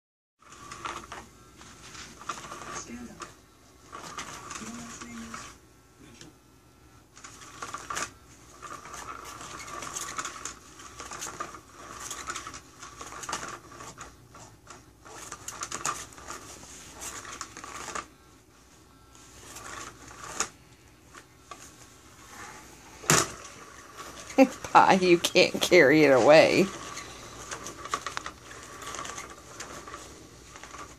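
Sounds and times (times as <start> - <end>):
cat toy motor whirring: 0.4 - 6.3, 7.0 - 30.9.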